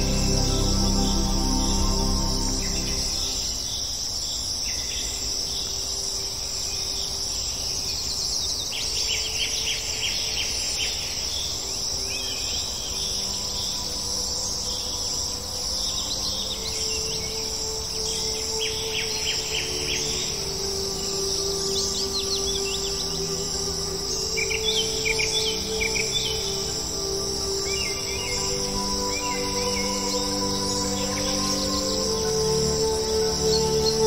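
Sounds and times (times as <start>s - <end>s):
high-pitched insect chorus: 0.0s - 34.0s.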